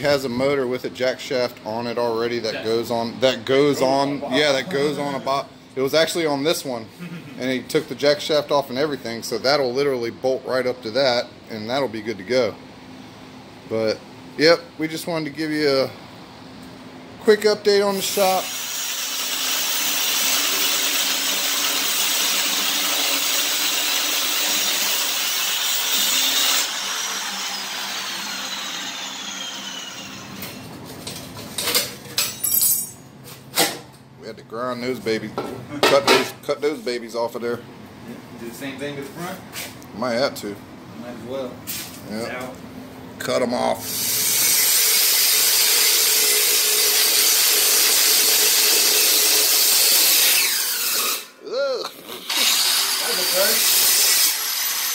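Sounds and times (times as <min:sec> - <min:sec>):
angle grinder cutting metal: 0:18.0 - 0:30.6, 0:43.9 - 0:51.4, 0:52.1 - 0:54.9
grinder disc spinning down: 0:18.0 - 0:30.6.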